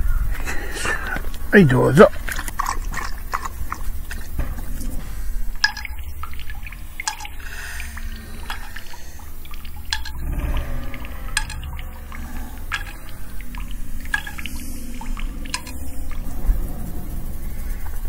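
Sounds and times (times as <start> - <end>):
steady low hum: 0.0 - 18.0
dog lapping water: 2.0 - 16.4.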